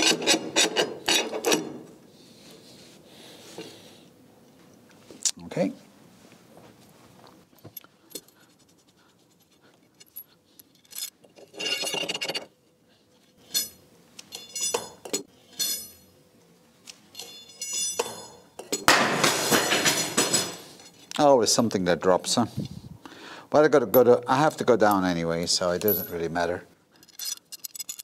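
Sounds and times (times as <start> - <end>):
metal rods clinking and scraping: 10.0 - 12.5, 13.2 - 16.1, 17.0 - 21.2, 27.0 - 28.0
metal hardware dropped clattering: 13.4 - 16.0, 17.2 - 21.0.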